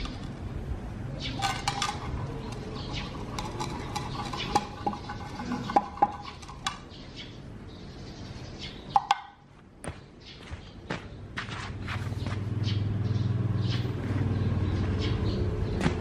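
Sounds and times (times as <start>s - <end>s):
chopsticks scraping frying pan: 1.4s - 6.8s.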